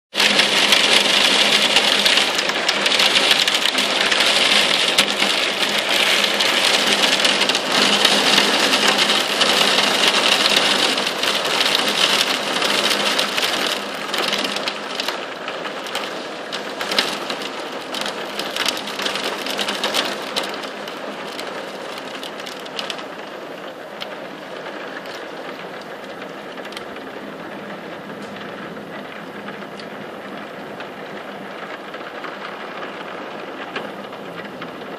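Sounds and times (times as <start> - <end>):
heavy rain and hail pelting: 0.1 - 34.9.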